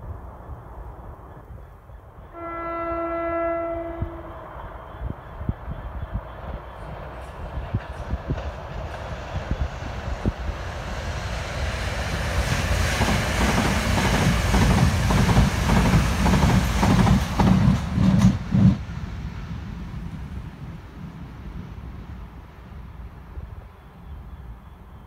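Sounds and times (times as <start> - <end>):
train wheels rushing on rail: 0.1 - 24.9.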